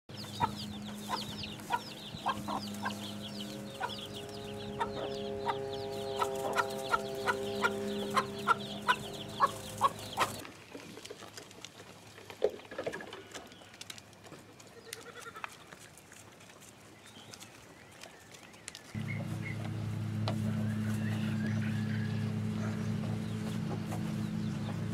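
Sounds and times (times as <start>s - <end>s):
hen clucking: 0.1s - 10.4s, 19.0s - 24.9s
low steady hum: 0.1s - 10.4s, 19.0s - 24.9s
chicks peeping: 0.1s - 11.0s, 18.9s - 24.9s.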